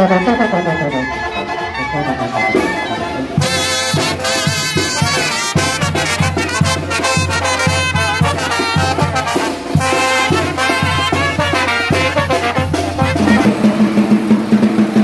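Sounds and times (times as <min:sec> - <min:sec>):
sousaphone: 0:00.0 - 0:05.5, 0:13.0 - 0:13.8
trumpets and trombones: 0:00.0 - 0:15.0
bass drum beat: 0:03.4 - 0:15.0.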